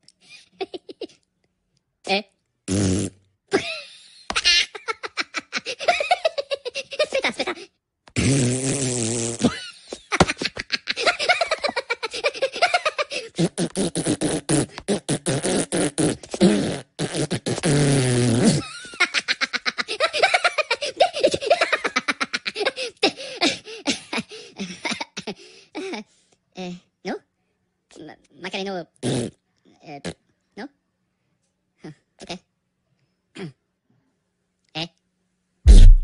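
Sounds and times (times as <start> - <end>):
cartoon fart noises: 2.7 - 3.3, 8.1 - 10.3, 13.2 - 18.7, 29.0 - 30.2, 35.7 - 36.0
high-pitched giggling: 3.5 - 7.7, 9.5 - 13.5, 18.6 - 26.0.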